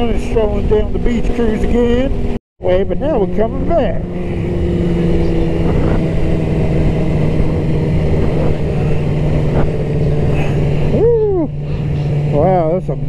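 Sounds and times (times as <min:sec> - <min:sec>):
motorcycle engine cruising: 0:00.0 - 0:13.0
wind and road noise: 0:00.0 - 0:13.0.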